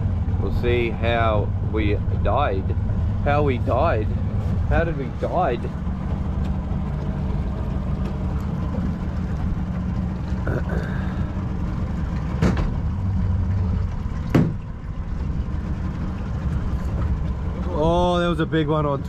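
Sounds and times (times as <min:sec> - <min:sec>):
boat motor idling: 0:00.0 - 0:19.0
sharp knocks: 0:14.3 - 0:14.6.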